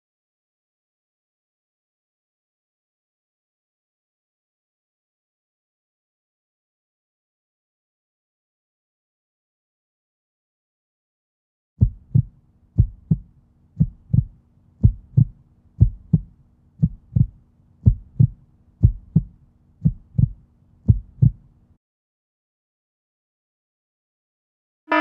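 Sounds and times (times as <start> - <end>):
heartbeat double thumps: 11.8 - 21.4
faint steady hum: 11.8 - 21.8.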